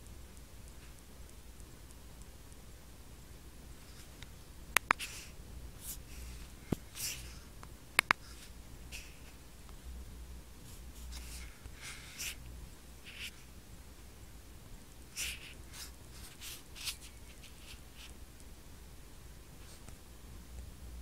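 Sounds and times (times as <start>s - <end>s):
fingertips tapping on touchscreen: 3.9s - 5.3s, 8.0s - 9.2s.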